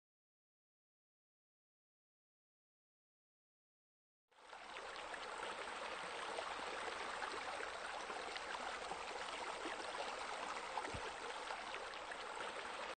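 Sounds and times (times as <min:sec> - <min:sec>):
water splashing and trickling: 0:04.4 - 0:12.9.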